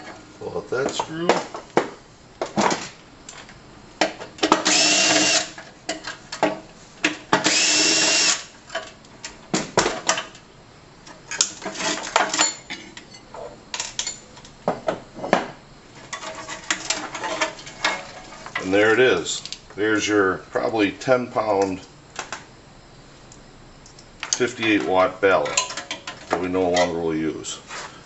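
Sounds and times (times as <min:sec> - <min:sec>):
power drill running: 0:04.6 - 0:05.6, 0:07.4 - 0:08.5
metal parts clicking and knocking: 0:25.4 - 0:27.0.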